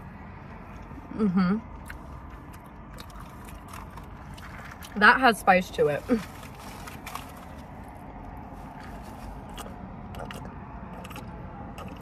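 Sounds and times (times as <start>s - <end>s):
passing road traffic: 0.0s - 12.0s
mouth clicks from chewing: 1.8s - 5.0s, 8.8s - 12.0s.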